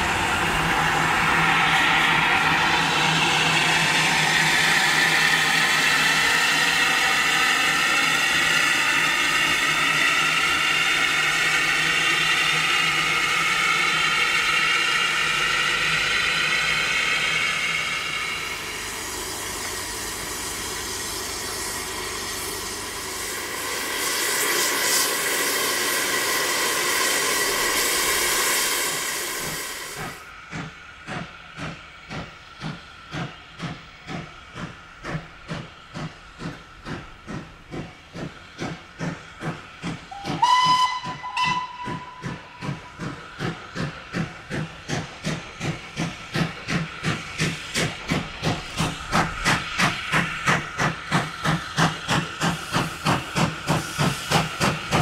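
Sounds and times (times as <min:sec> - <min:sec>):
steam hissing: 0:00.0 - 0:55.0
steam locomotive exhaust beats: 0:00.0 - 0:55.0
train whistle: 0:40.1 - 0:42.6.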